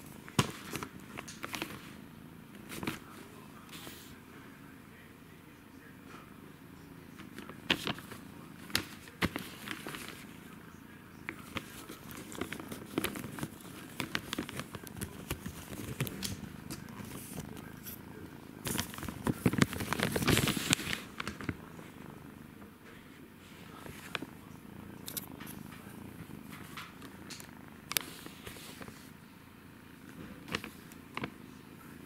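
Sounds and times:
kitten purring: 0.0 - 32.0
rustling and scuffling: 7.2 - 10.4, 11.3 - 18.0, 18.6 - 21.6.

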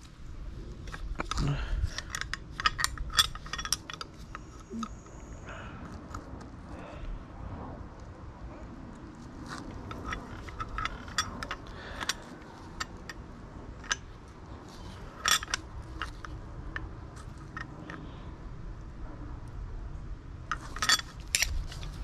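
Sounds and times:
metal tools clicking and clinking: 0.9 - 5.1, 9.5 - 13.2, 13.8 - 18.0, 20.5 - 22.0.

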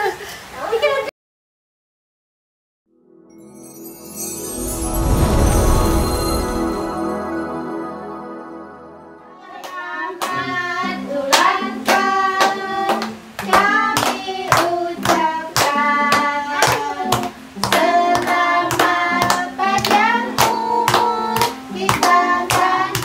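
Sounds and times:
instrumental intro tune: 2.9 - 10.1
group singing a birthday song: 4.5 - 23.0
people clapping in time: 9.5 - 23.0.

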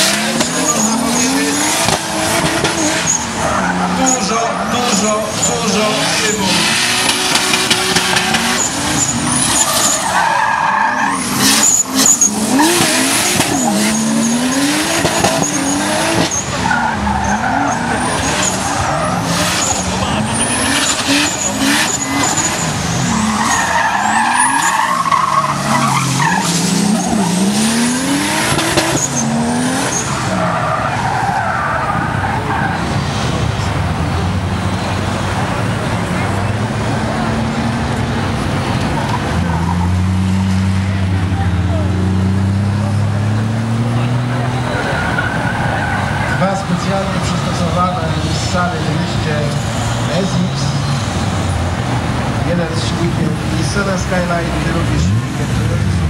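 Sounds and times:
car engine revving: 0.0 - 56.0
tyres squealing: 0.1 - 33.0.

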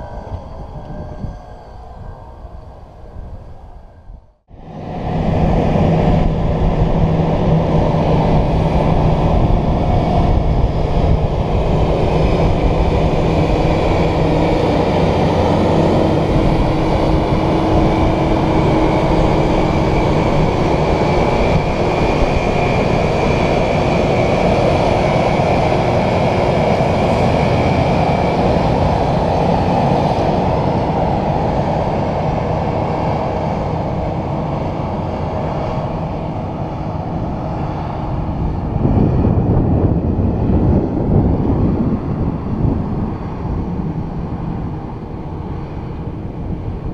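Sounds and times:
train engines running: 0.0 - 46.9.

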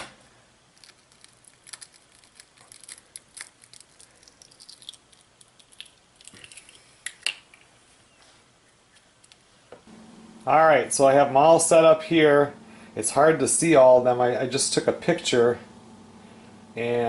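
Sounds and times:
eggshell crackling: 0.6 - 7.8.

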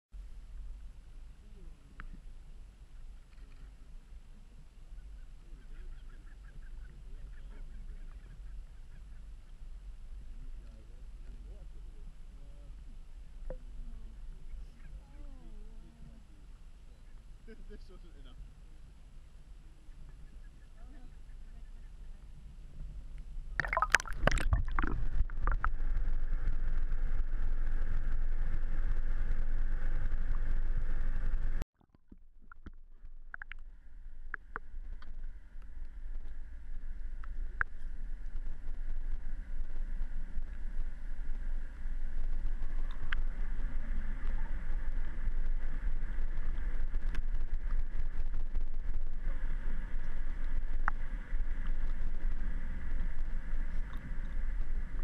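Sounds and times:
muffled underwater rushing drone: 0.2 - 31.6, 32.4 - 55.0
water splashing: 23.6 - 26.7.

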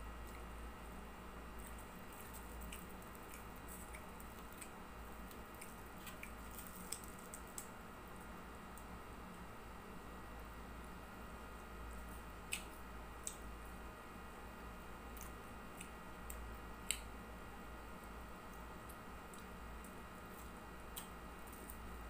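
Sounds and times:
steady low hum: 0.0 - 22.0
crunching and chewing: 1.4 - 7.8, 15.1 - 17.1, 18.4 - 22.0.

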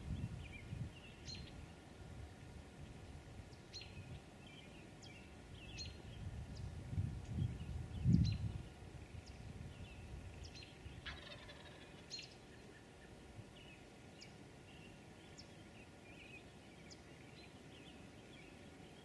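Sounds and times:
songbird chirps: 0.0 - 2.0, 2.8 - 19.0
faint turkey gobbling: 11.0 - 13.2.

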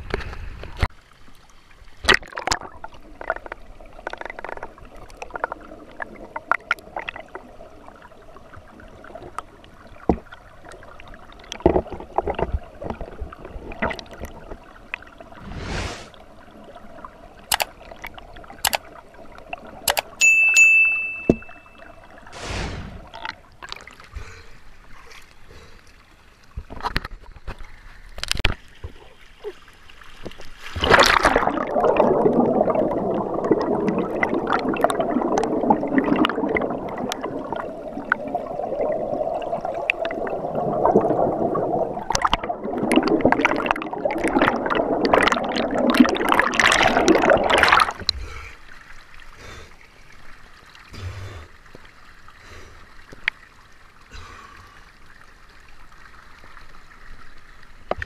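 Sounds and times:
water churning and bubbling underwater: 0.0 - 20.2, 21.1 - 58.0
small clicks and knocks: 17.5 - 17.7.

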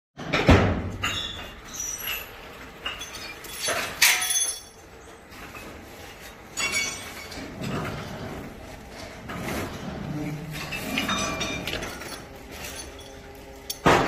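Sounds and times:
metallic clanks and clinks: 1.0 - 4.9, 6.5 - 8.1, 10.5 - 14.0.

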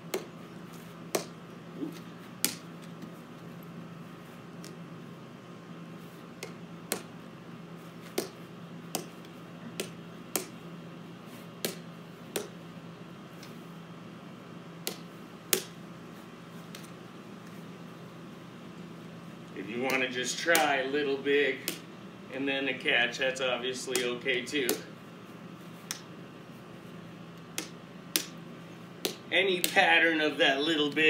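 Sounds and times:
wiffle ball tapping on paddle: 11.6 - 12.6.

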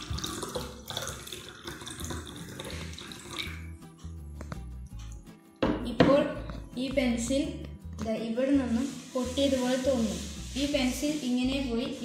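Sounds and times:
water pouring into a glass: 0.0 - 3.8.

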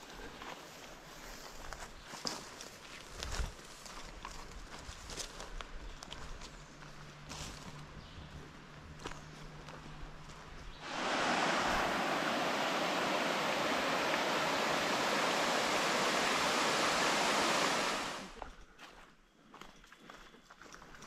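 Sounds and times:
water rushing over rock: 10.8 - 18.4.

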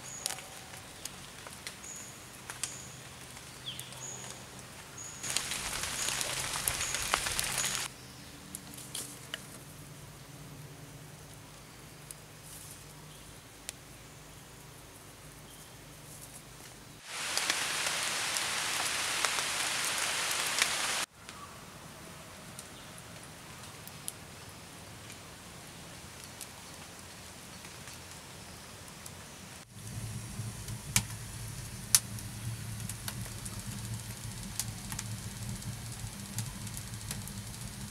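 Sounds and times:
loud steady hiss: 0.0 - 7.9, 16.9 - 21.1, 29.2 - 37.9
wood fire crackling: 0.0 - 7.9, 17.0 - 21.1, 22.6 - 28.4, 29.0 - 37.9.

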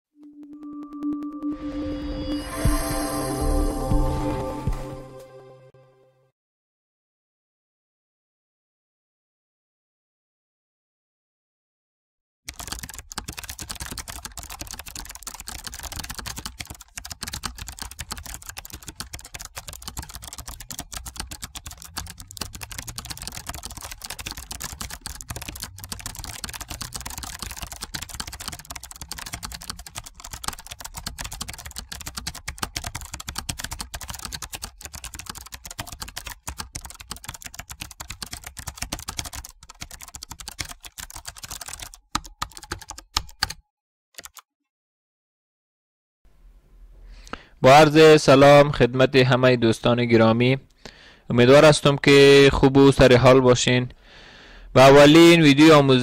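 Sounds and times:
computer keyboard typing: 0.4 - 1.6, 12.5 - 43.6, 44.2 - 44.4.

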